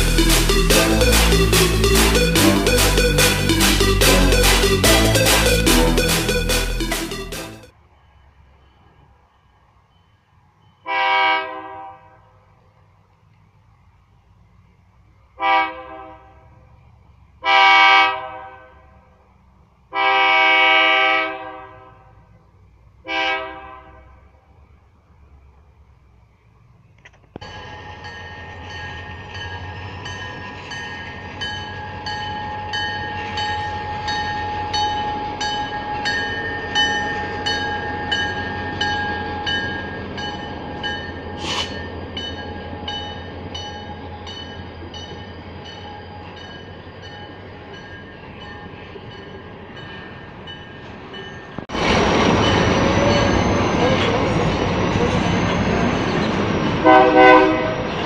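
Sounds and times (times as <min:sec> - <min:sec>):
locomotive horn: 0:00.0 - 0:07.7, 0:10.8 - 0:12.4, 0:15.4 - 0:16.7, 0:17.4 - 0:19.1, 0:19.9 - 0:22.3, 0:23.0 - 0:24.3, 0:56.8 - 0:58.0
train rumble: 0:00.0 - 0:58.0.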